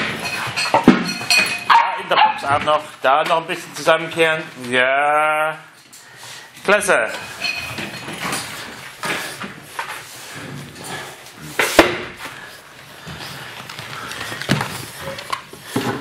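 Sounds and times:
puppies scuffling on wooden floor: 7.2s - 11.0s, 12.2s - 16.0s.

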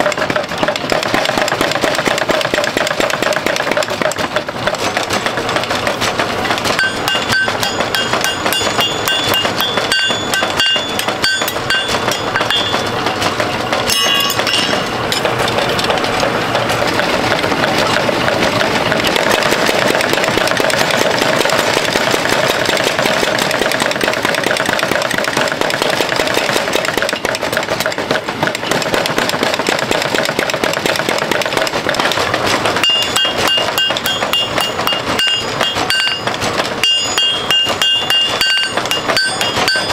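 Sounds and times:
hammer striking steel on anvil: 6.7s - 15.5s, 32.8s - 39.9s.

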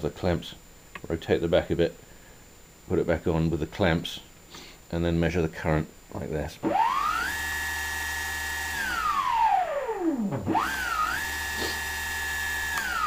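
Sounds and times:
brushless motor whining: 6.7s - 13.0s.

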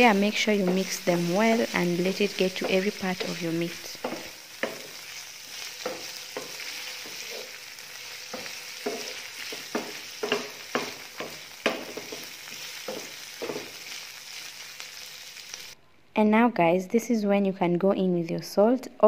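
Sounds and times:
spatula scraping pan: 0.0s - 14.0s
meat sizzling in frying pan: 0.0s - 15.8s.

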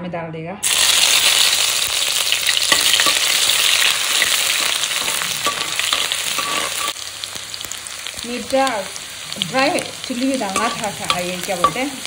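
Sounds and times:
oil sizzling in a pan: 0.6s - 12.0s
spoon clicking in a pan: 10.5s - 12.0s.

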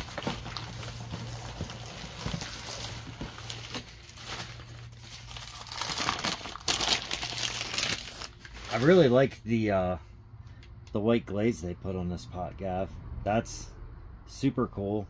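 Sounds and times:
newspaper crinkling and rustling: 0.0s - 9.3s.

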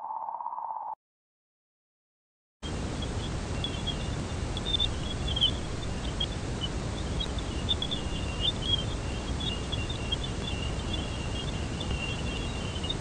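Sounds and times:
low rumble and hiss: 2.6s - 13.0s.

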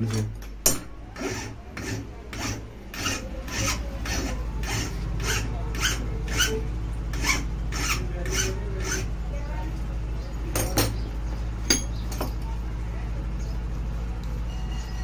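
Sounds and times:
hand file rasping on metal: 1.1s - 9.1s.

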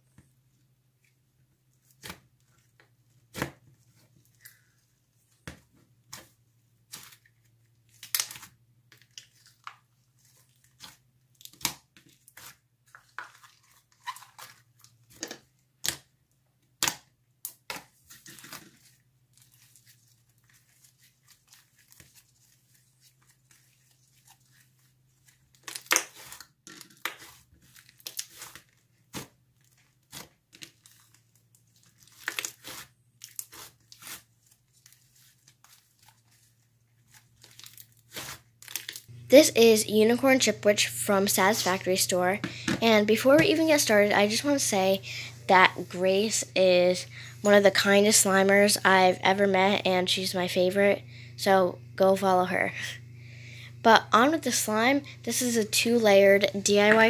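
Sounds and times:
slime popping and crackling: 25.6s - 29.2s
faint low hum: 39.1s - 57.0s.

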